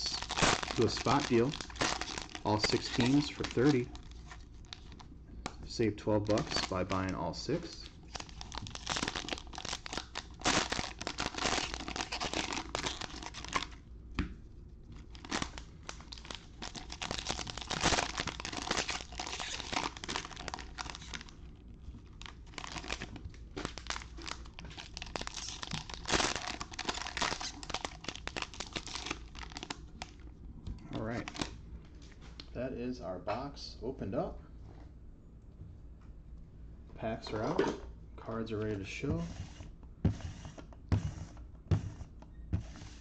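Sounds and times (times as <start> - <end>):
wrappers tearing and crinkling: 0.0 - 5.0, 6.2 - 13.8, 14.9 - 30.2, 30.9 - 31.6.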